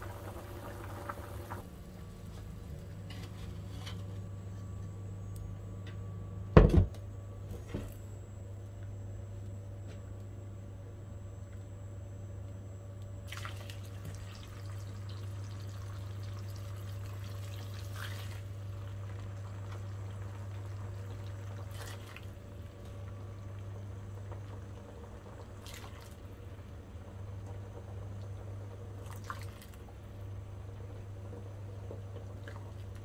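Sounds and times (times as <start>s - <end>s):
low hum: 0.0s - 16.8s.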